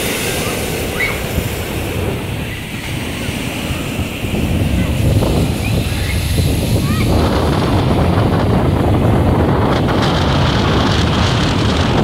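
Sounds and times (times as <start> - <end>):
surf breaking against breakwater: 0.0 - 12.0
wind buffeting microphone: 0.0 - 12.0.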